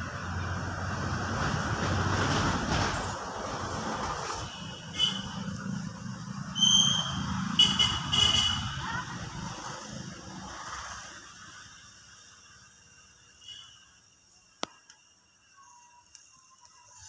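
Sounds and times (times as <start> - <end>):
vehicle engine rumble: 0.0 - 13.4
short high-pitched squeals: 6.5 - 8.6.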